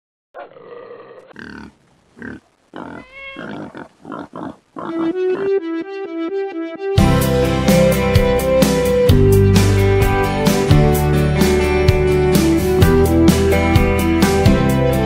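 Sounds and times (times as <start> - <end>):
animal grunts and whines: 0.4 - 5.5
light music with held notes: 4.9 - 15.0.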